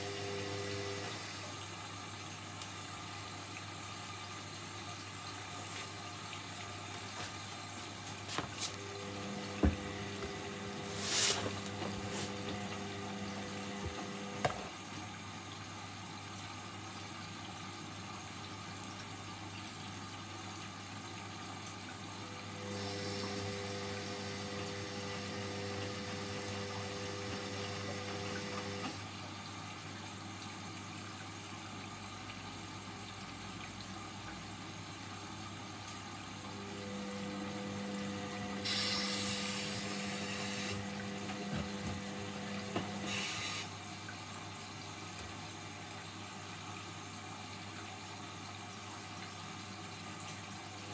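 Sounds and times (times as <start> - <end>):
washing machine motor whine: 0.0 - 15.3, 22.0 - 29.3, 36.3 - 44.0
water sloshing in washing machine: 0.0 - 50.9.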